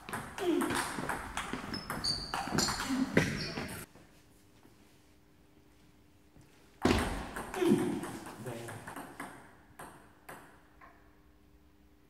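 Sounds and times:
shoes squeaking on floor: 0.4s - 3.9s.

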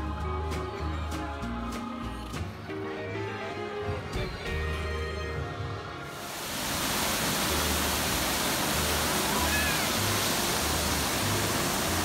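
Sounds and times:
ride music: 0.0s - 6.3s
rushing water: 6.0s - 12.0s.

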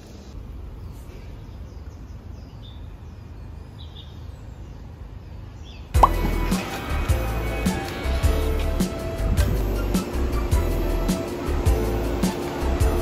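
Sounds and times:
traffic rumble: 0.0s - 13.0s
bird chirps: 0.8s - 6.4s.

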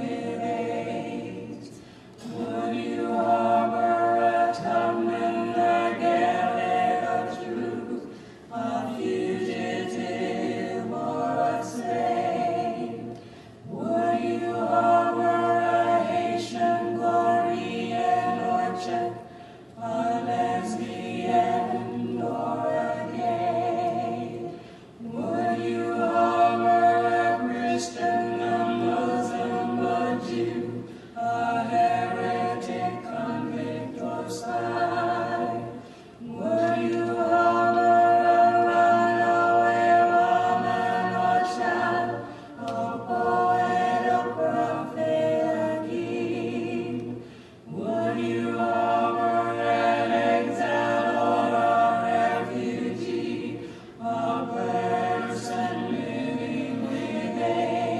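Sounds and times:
choir singing held chords: 0.0s - 57.9s.

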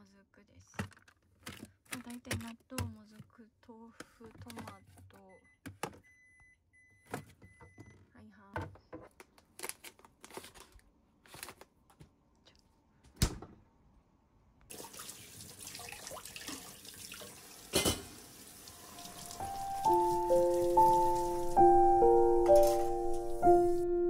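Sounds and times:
bottles rattling in fridge door: 0.8s - 3.2s
kitchenware clatter: 17.7s - 18.2s, 22.5s - 23.2s.

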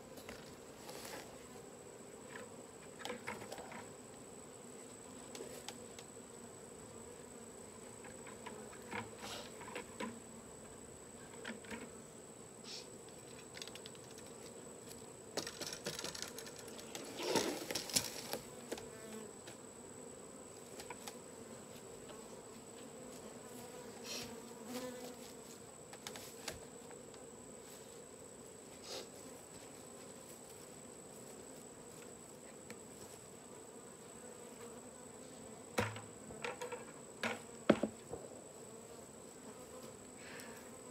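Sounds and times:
rustles and knocks: 13.2s - 19.6s.

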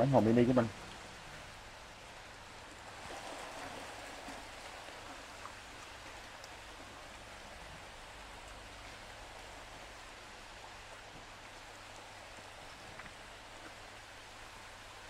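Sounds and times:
rain-like water patter: 0.0s - 15.0s
fish splashing in water: 2.7s - 9.8s.

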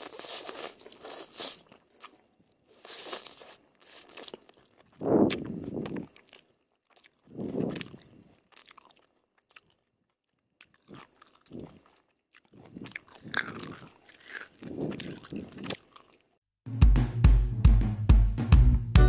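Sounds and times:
chewing and slurping noodles: 0.0s - 16.4s
wet mouth clicks: 4.9s - 6.4s, 12.5s - 16.2s.

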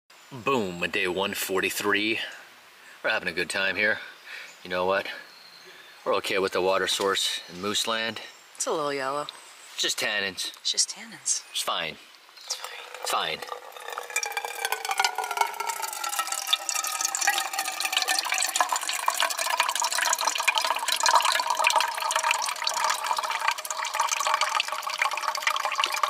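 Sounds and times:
water pouring into metal mug: 12.5s - 26.0s.

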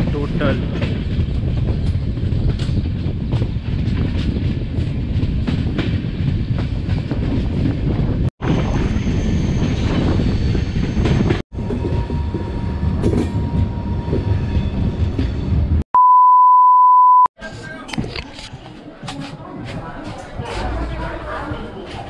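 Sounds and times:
train rumble: 0.0s - 15.8s
loud test-tone beep: 16.0s - 17.3s.

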